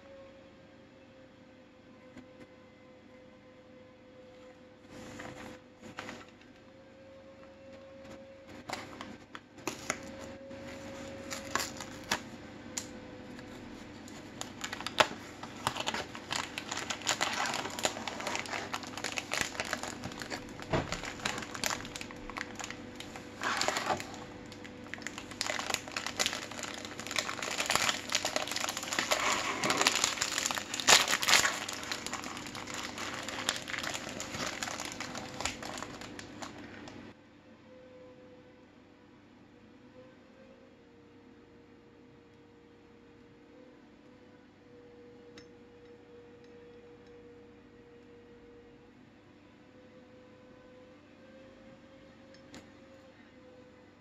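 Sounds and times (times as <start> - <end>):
plastic wrapper crinkling: 8.7 - 12.4, 13.4 - 37.0.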